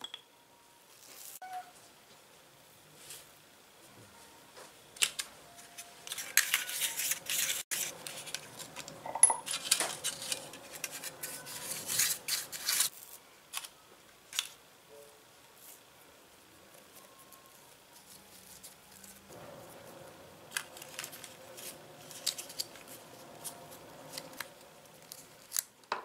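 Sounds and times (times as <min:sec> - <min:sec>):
foil crinkling: 0:05.0 - 0:13.8, 0:16.8 - 0:19.3, 0:20.5 - 0:25.9
brush bristles scraping foil pan: 0:05.7 - 0:08.9, 0:09.5 - 0:13.2.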